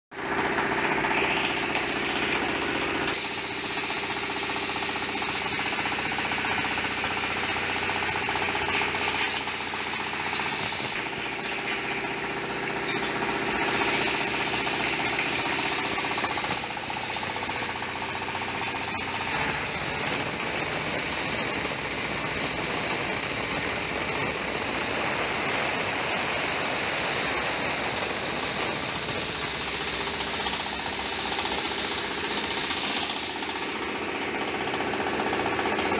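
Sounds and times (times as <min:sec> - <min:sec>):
hammer mill grinding: 0:00.2 - 0:35.9.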